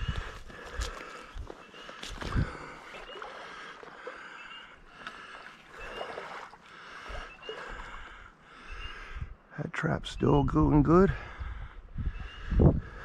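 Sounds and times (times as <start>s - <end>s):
footsteps through dry grass: 0.0s - 2.6s.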